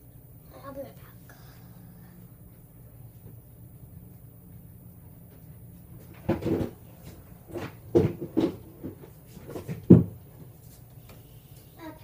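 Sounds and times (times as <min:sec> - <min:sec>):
dull knocks and thumps: 0:06.0 - 0:10.2.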